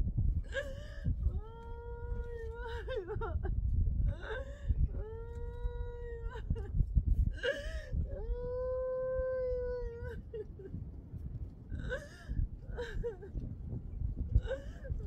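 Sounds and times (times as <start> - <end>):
child sobbing cries: 1.4 - 3.4, 4.1 - 6.7, 7.4 - 10.7, 11.8 - 13.3, 14.4 - 15.0
young child wailing: 8.1 - 10.4.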